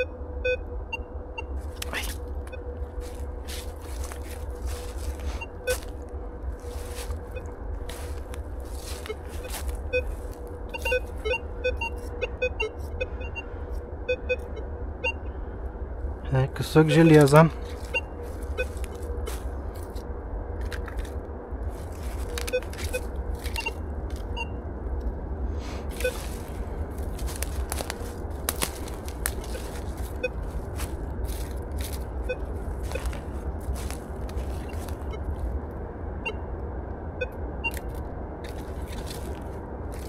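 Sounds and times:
metal detector tone: 0:00.0 - 0:01.5, 0:08.9 - 0:13.5, 0:22.2 - 0:24.6
low steady hum: 0:00.0 - 0:40.0
dry leaves crackling underfoot: 0:01.6 - 0:12.2, 0:16.8 - 0:20.0, 0:20.6 - 0:24.4, 0:25.6 - 0:35.6, 0:37.7 - 0:40.0
high metal detector blips: 0:04.6 - 0:06.0, 0:06.8 - 0:13.5, 0:22.2 - 0:24.5, 0:25.9 - 0:26.5, 0:31.4 - 0:35.3.

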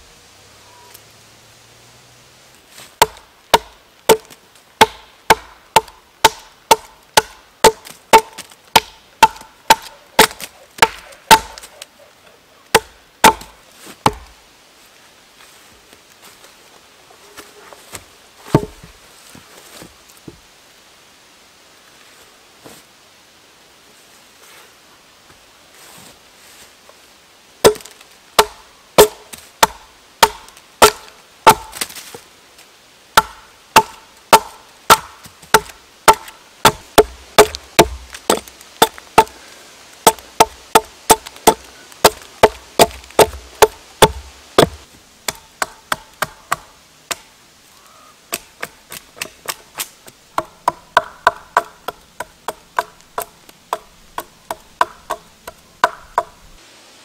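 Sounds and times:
axe chopping log: 0:03.0 - 0:11.7, 0:12.7 - 0:14.3, 0:18.5 - 0:18.8, 0:27.6 - 0:32.0, 0:33.2 - 0:39.4, 0:40.0 - 0:47.2, 0:48.3 - 0:56.4.

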